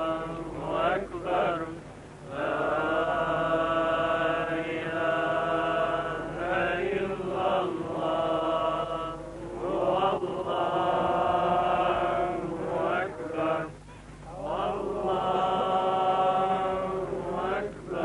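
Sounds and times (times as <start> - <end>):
religious chanting: 0.0 - 18.0.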